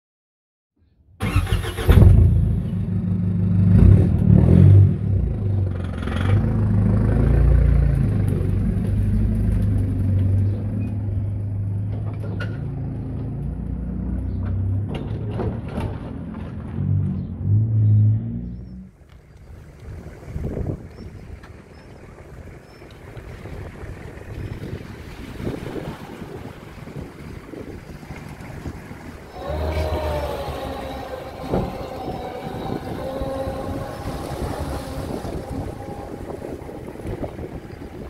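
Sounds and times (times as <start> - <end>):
car engine starting and running: 1.2 - 19.2.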